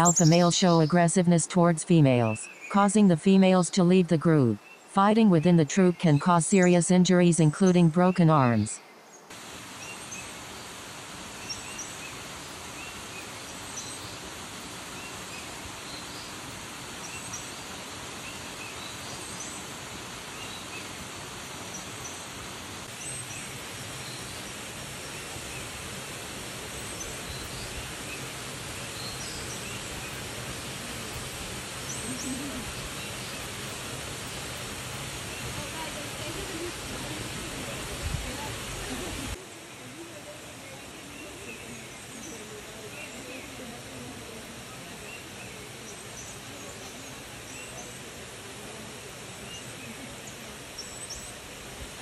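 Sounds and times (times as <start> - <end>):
high chirping calls: 0.0 - 1.3
steady background hiss: 0.0 - 52.0.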